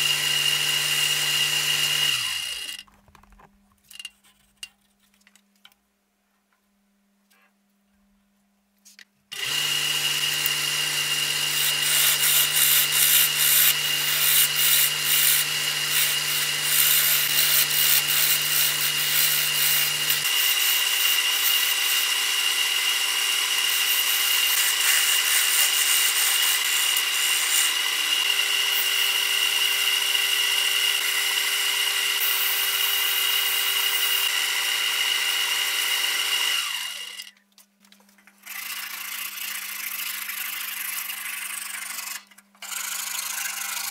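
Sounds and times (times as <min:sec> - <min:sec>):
lathe motor whine: 0:09.4 - 0:24.8
chisel scraping spinning wood: 0:09.4 - 0:29.4.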